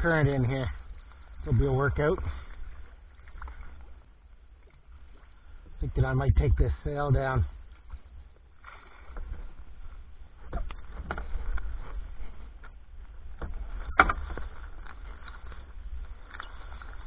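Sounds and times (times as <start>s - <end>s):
low water rumble: 0.0s - 17.0s
kayak knocks and clicks: 10.4s - 17.0s.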